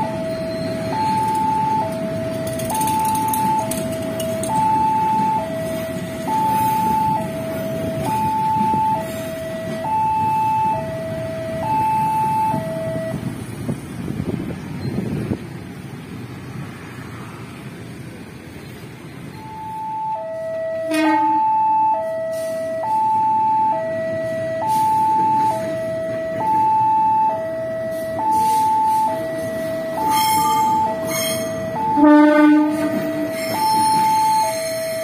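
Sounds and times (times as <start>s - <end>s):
level crossing two-tone alarm: 0.0s - 13.2s, 19.4s - 35.0s
street traffic: 0.0s - 35.0s
locomotive horn: 20.8s - 22.9s, 29.9s - 35.0s
short horn blast: 20.9s - 21.5s, 32.0s - 33.5s.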